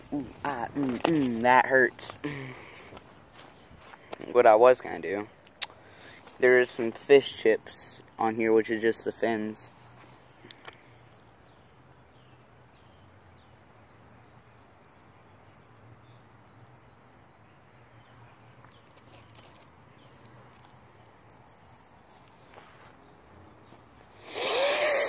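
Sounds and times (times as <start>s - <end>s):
distant bird chirps: 10.0s - 25.0s.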